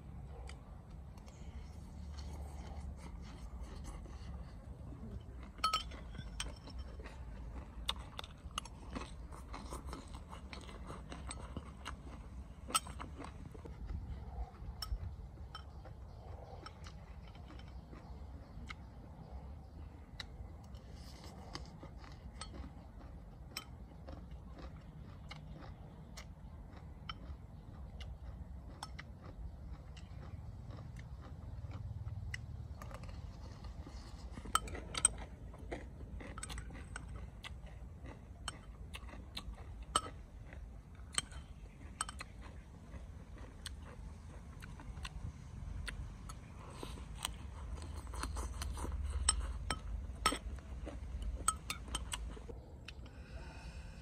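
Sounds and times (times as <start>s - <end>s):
quiet chewing: 0.0s - 54.0s
cutlery clinking against a dish: 5.5s - 7.1s.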